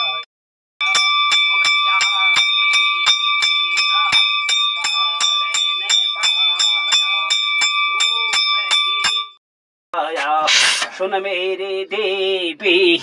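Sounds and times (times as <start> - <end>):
temple bell ringing rapidly: 0.0 - 0.2, 0.8 - 9.4
person chanting: 10.0 - 13.0.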